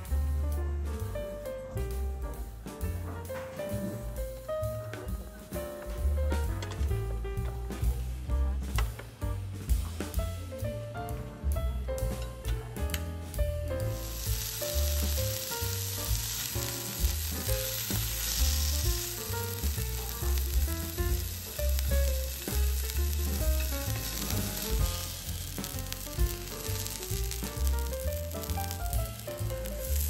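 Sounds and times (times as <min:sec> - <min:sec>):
food sizzling on grill plate: 0:13.8 - 0:30.0.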